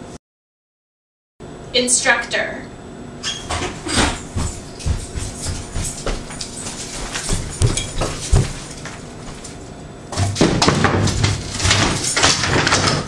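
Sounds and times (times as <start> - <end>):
bumps and clatter: 3.5 - 9.5, 10.1 - 13.0.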